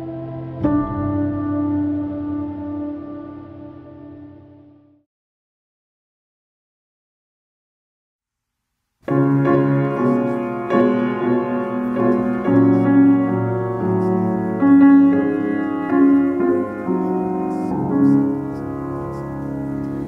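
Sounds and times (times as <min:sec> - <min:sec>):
piano playing slow chords: 0:00.0 - 0:05.0, 0:09.0 - 0:20.0.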